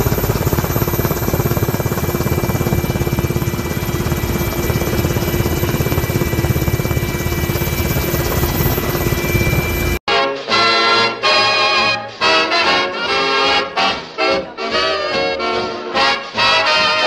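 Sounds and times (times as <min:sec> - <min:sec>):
helicopter rotor chopping: 0:00.0 - 0:10.0
helicopter whine: 0:00.0 - 0:10.0.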